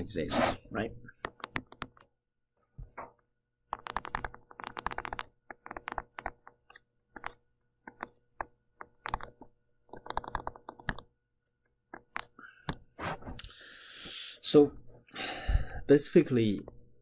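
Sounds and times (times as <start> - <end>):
stylus scratching on pen tablet: 0.2 - 0.7, 3.7 - 8.1.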